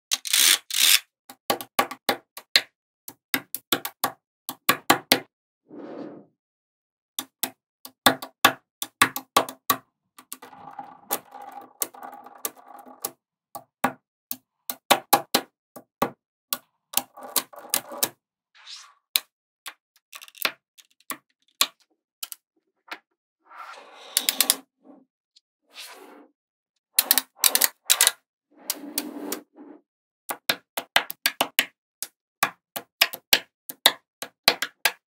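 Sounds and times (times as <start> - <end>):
magnetic balls clicking: 10.2 - 13.1, 16.9 - 18.1.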